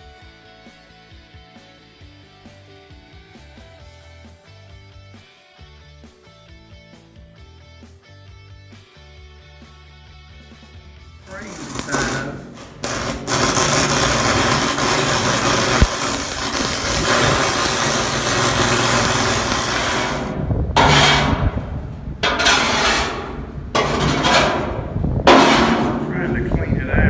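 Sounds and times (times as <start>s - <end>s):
arc welding crackling sizzle: 11.2s - 23.5s.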